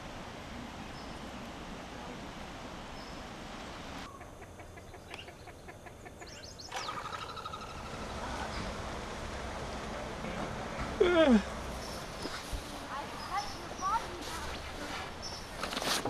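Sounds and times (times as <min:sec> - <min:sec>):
steady outdoor hiss: 0:00.0 - 0:16.0
birds chirping and trilling: 0:02.9 - 0:03.4, 0:04.1 - 0:08.9, 0:11.6 - 0:15.7.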